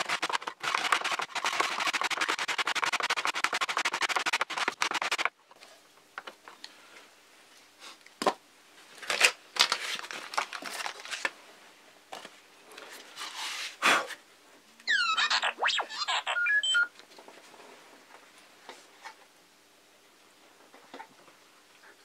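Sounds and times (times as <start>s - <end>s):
plastic sanded on sandpaper: 0.0s - 5.3s
paper crinkling and rustling: 9.0s - 11.4s.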